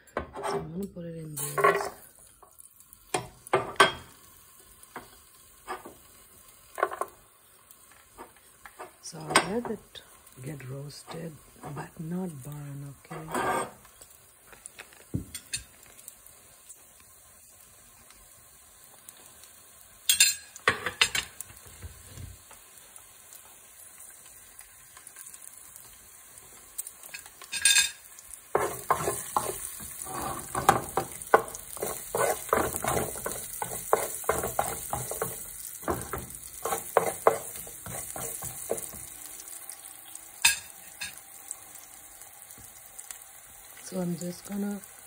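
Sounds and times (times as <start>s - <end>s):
garlic sizzling in hot oil: 0.0s - 45.0s
utensil scraping in pan: 0.2s - 2.1s, 12.8s - 15.8s, 27.0s - 39.8s.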